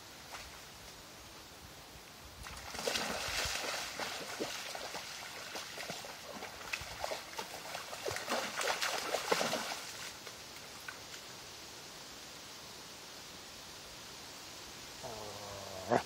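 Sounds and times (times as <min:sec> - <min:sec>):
creek water splashing: 0:02.2 - 0:11.4.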